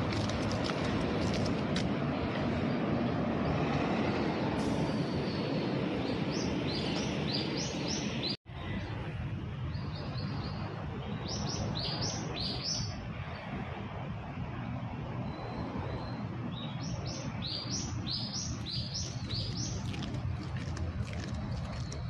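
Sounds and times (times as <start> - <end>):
low outdoor background noise: 0.0 - 22.0
small bird chirping: 16.0 - 20.7.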